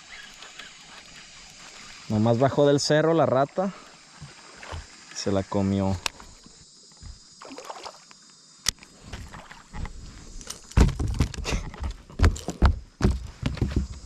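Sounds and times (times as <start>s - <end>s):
water disturbance: 0.0s - 5.4s, 7.0s - 8.0s
heavy thumps and knocks on boat: 7.0s - 7.2s, 10.7s - 14.0s.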